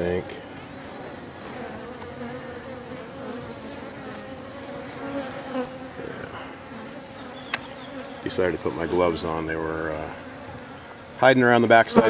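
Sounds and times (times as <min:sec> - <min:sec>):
bees buzzing: 0:00.0 - 0:12.0
sharp click: 0:07.5 - 0:07.7.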